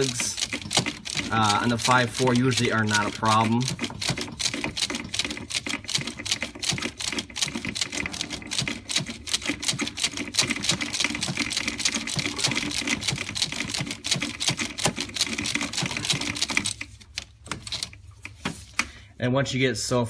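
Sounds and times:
ratchet clicking rapidly: 0:00.0 - 0:16.8.

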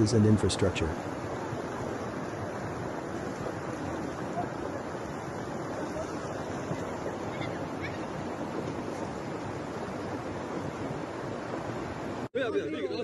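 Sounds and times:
floodwater rushing: 0:00.0 - 0:12.3.

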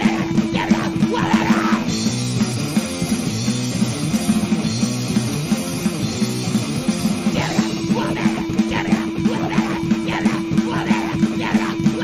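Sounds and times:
loud rock music: 0:00.0 - 0:12.0.

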